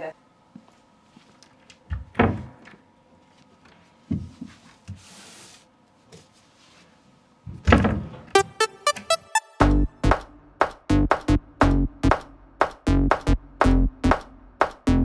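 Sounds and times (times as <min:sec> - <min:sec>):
wooden door banging shut: 0:07.6 - 0:08.2.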